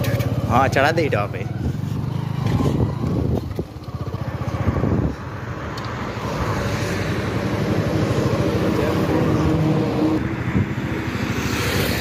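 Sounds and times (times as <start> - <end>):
motorcycle engine running: 0.0 - 5.6.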